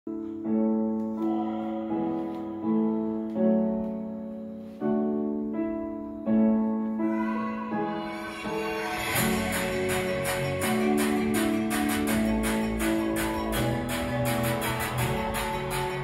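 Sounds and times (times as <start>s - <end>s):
slow piano chords: 0.1s - 16.0s.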